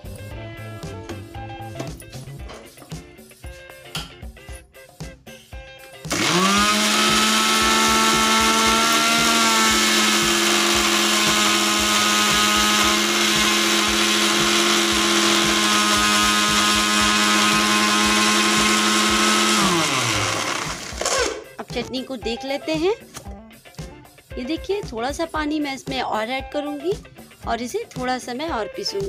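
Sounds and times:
mixer grinder motor grinding: 0:06.1 - 0:21.6.

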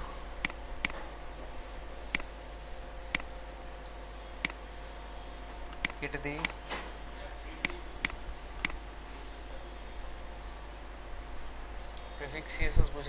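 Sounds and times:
low background hum: 0:00.0 - 0:13.0
computer mouse clicking: 0:00.4 - 0:01.0, 0:05.6 - 0:06.6.

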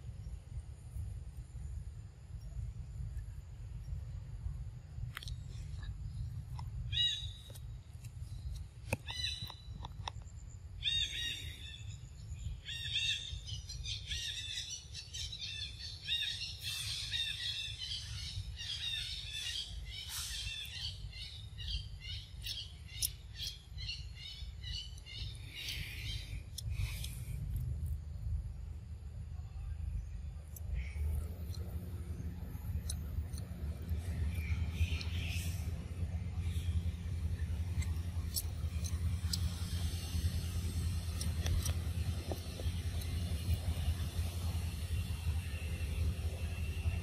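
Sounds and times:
low rumble: 0:00.0 - 0:14.5, 0:24.0 - 0:47.0
birds calling: 0:05.4 - 0:27.4, 0:30.0 - 0:47.0.

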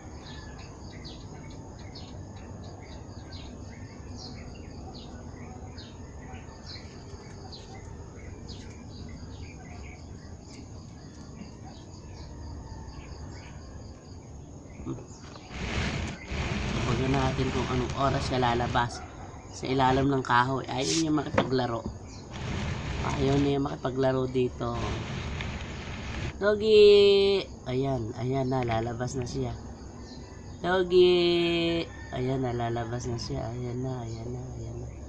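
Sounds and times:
small birds chirping: 0:00.0 - 0:26.4.

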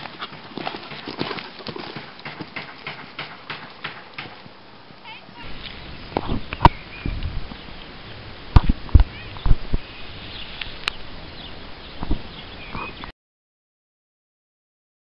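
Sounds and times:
horse hoofbeats on sand: 0:00.0 - 0:05.7.

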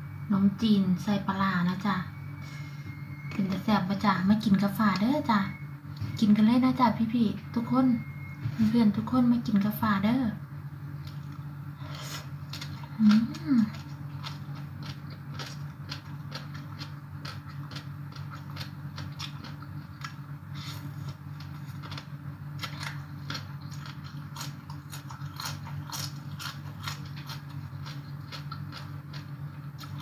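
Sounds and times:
steady low hum: 0:00.0 - 0:30.0
chewing and crunching food: 0:11.0 - 0:30.0.

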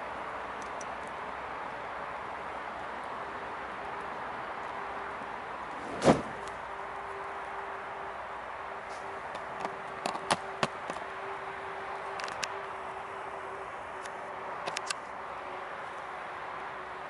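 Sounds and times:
jacket thumping on ground: 0:05.8 - 0:06.5
sharp clicks and cracks: 0:14.0 - 0:15.0.

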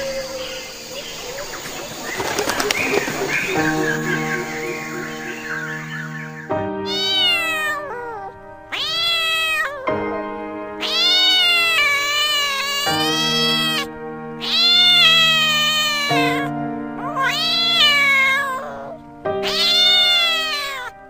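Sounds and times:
background music held notes: 0:00.0 - 0:21.0
cat meowing: 0:06.8 - 0:10.0, 0:10.8 - 0:21.0.

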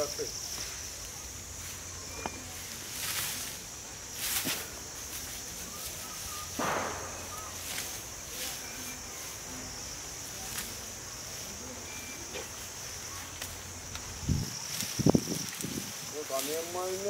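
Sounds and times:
insect drone: 0:00.0 - 0:17.0
faint bird chirps: 0:01.9 - 0:02.8, 0:05.6 - 0:09.4.

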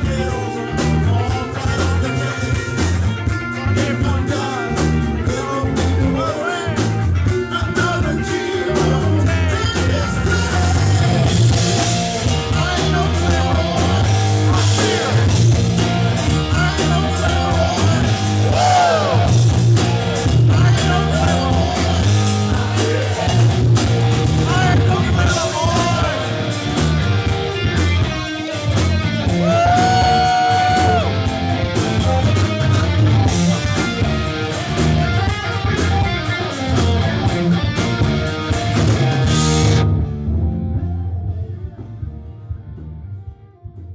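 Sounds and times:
person singing: 0:00.0 - 0:26.6, 0:29.2 - 0:32.3
bass guitar: 0:00.0 - 0:43.9
drum kit: 0:00.0 - 0:43.9
electric guitar: 0:00.0 - 0:43.9.

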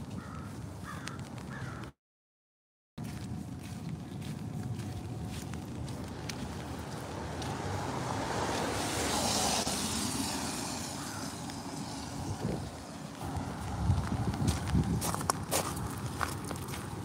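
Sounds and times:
footsteps on wet pavement: 0:00.0 - 0:02.0, 0:03.0 - 0:17.0
car tyres hissing on wet road: 0:07.1 - 0:14.3.

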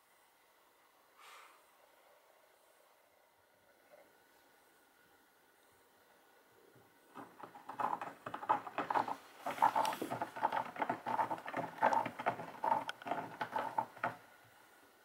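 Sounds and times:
cat crunching cardboard scratcher: 0:07.2 - 0:14.2.

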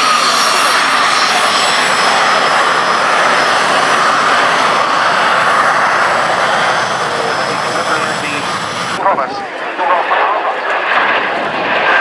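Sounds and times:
high-pitched jet whine: 0:00.0 - 0:12.0
jet engines running: 0:00.0 - 0:12.0.

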